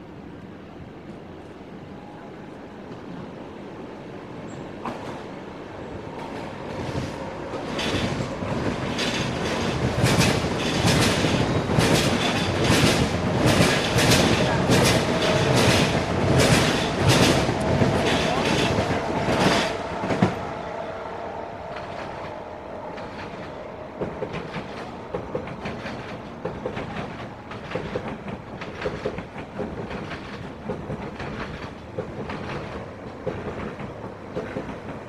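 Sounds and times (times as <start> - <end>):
electric train hum and whine: 0.0 - 35.0
rail noise: 0.0 - 35.0
light clicks over rails: 6.1 - 20.6, 21.6 - 35.0.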